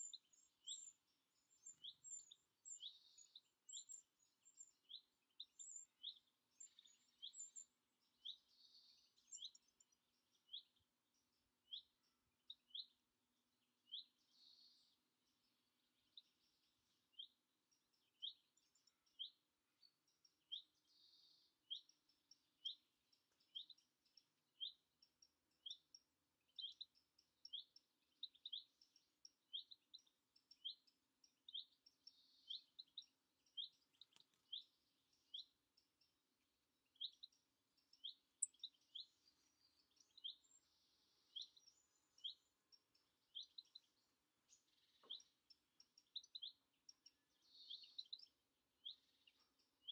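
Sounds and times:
faint birds calling: 0.0 - 49.9.

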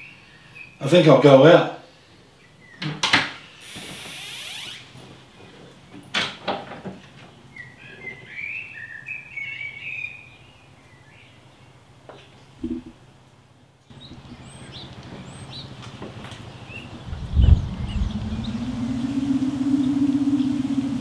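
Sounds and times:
small birds chirping: 13.9 - 18.8.

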